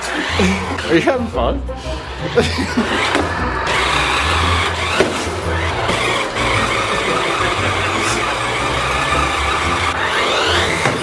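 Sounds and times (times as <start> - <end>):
toy car electric motor whining: 0.0 - 1.3, 2.0 - 11.0.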